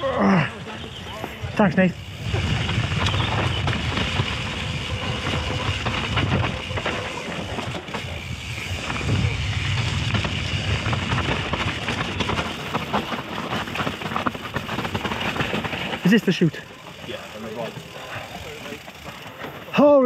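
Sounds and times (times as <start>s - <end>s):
bike clicks and rattles: 0.0s - 20.0s
wind rumbling on microphone: 0.6s - 16.1s.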